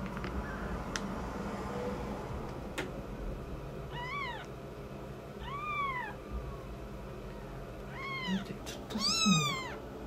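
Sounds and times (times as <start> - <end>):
kitten mewing: 3.9 - 4.6, 5.4 - 6.3, 7.3 - 9.8.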